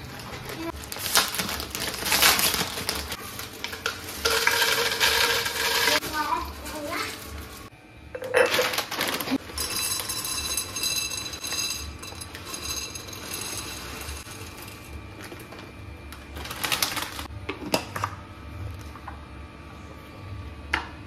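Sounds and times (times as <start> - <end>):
plastic bag crinkling: 0.0 - 7.7, 8.4 - 10.9, 16.3 - 17.3
plastic bag rustling: 0.0 - 7.7, 8.4 - 11.8, 16.3 - 17.3.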